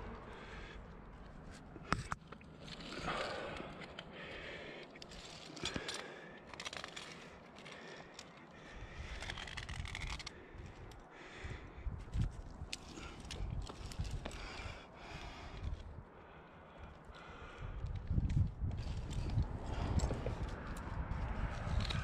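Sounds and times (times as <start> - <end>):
metal climbing gear clinking: 1.2 - 11.0, 12.0 - 15.9, 17.8 - 22.0
low rumble: 17.3 - 22.0.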